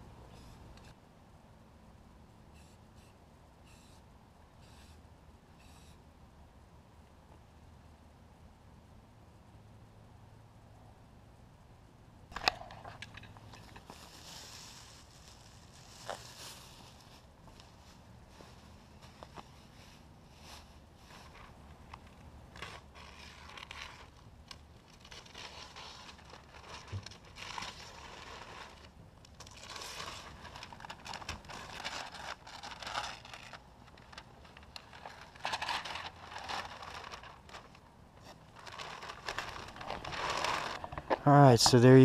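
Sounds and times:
paper rustling and crumpling: 0:13.5 - 0:41.8
masking tape peeling: 0:22.0 - 0:40.9.

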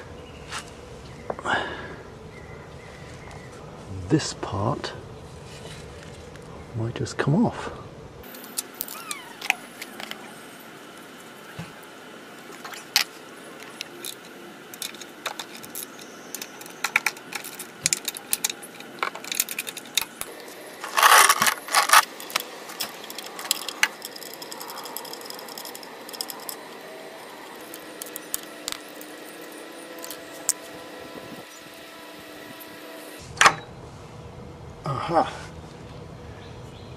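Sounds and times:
metal tools clinking: 0:13.6 - 0:30.7.

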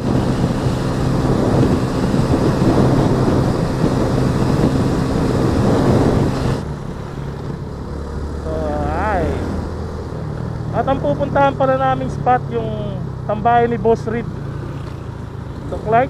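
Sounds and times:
wind buffeting microphone: 0:00.0 - 0:06.9
motorcycle engine hum: 0:00.0 - 0:16.0.

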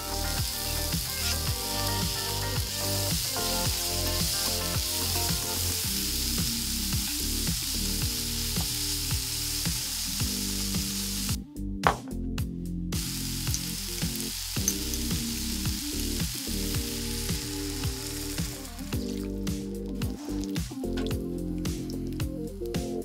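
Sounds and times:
vegetables sizzling in a frying pan: 0:00.0 - 0:11.4, 0:13.0 - 0:18.9
background music with steady beat: 0:00.0 - 0:23.0.

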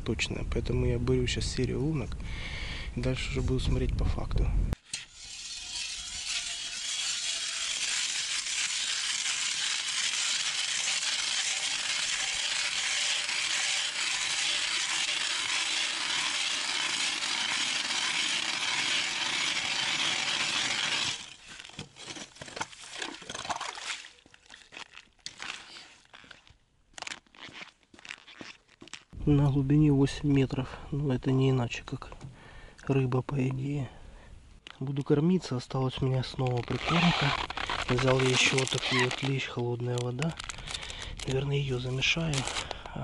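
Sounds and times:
ice auger grinding through ice: 0:04.9 - 0:23.4, 0:36.5 - 0:39.5, 0:40.4 - 0:42.8.

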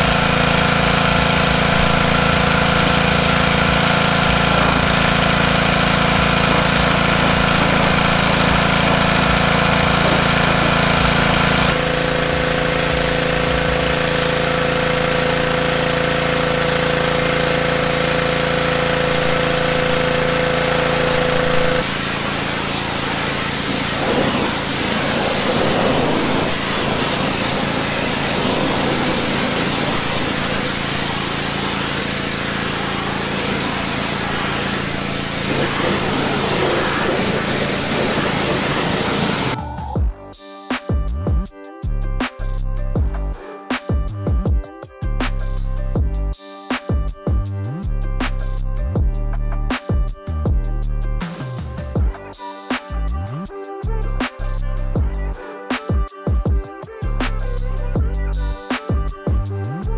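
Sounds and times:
pressure washer engine running: 0:00.0 - 0:40.2, 0:53.9 - 0:59.9
spray hissing on metal: 0:11.7 - 0:15.4, 0:19.0 - 0:39.6.

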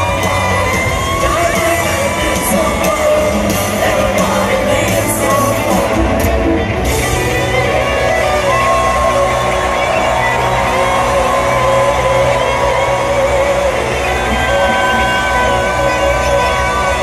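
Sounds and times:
man singing: 0:00.0 - 0:06.4
crowd yelling: 0:00.0 - 0:17.0
electric guitar lead with bent notes: 0:00.0 - 0:17.0.

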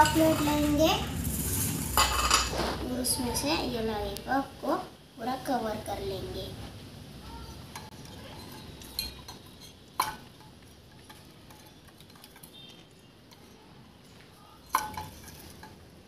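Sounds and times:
metal spoon scraping steel bowl: 0:01.4 - 0:02.7, 0:07.8 - 0:13.7, 0:14.6 - 0:15.8.

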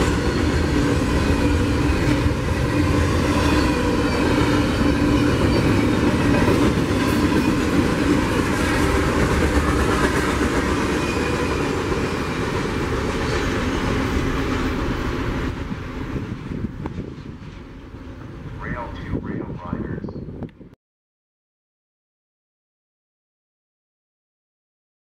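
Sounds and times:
train wheels rumbling on rails: 0:00.0 - 0:19.3.

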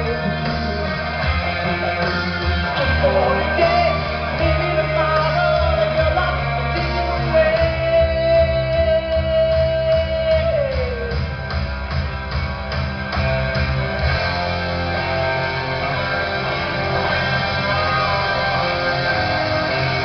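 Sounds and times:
rock music: 0:00.0 - 0:20.0.

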